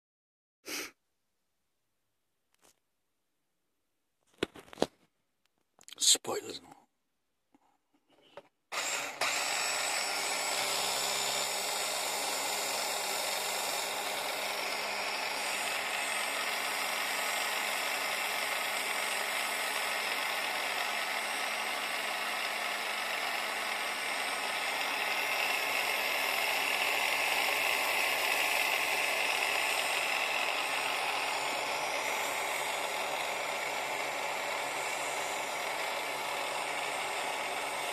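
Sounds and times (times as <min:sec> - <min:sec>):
small electric motor whirring: 0:08.2 - 0:37.9.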